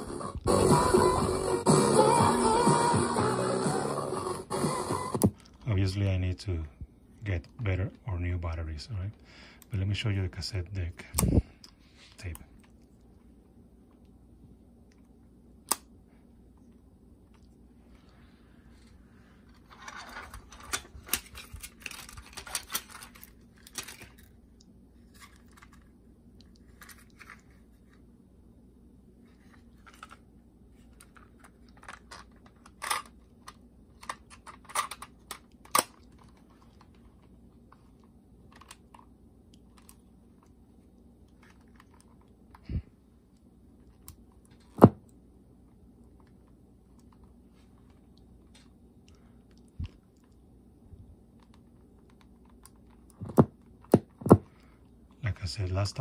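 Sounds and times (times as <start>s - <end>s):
plastic rustling: 18.8s - 24.4s.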